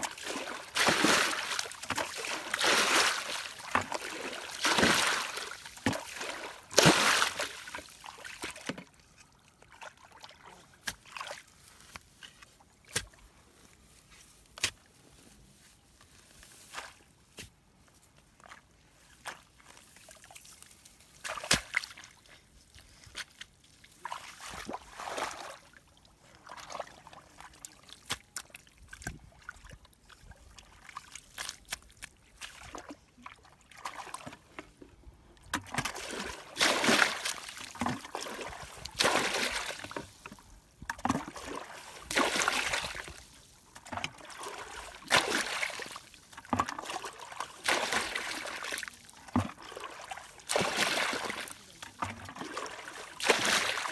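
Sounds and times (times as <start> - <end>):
splashing muddy water: 0.0 - 9.0, 23.2 - 34.8, 35.4 - 53.9.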